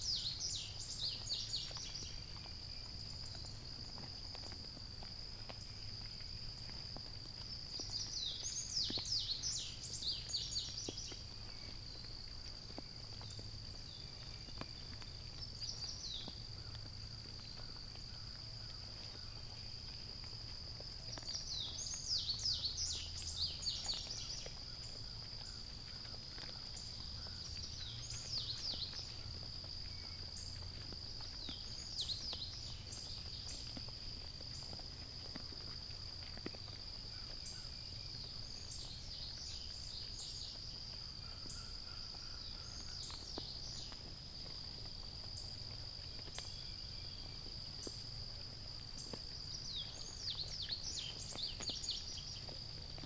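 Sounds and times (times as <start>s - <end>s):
crickets chirping: 0.0s - 53.0s.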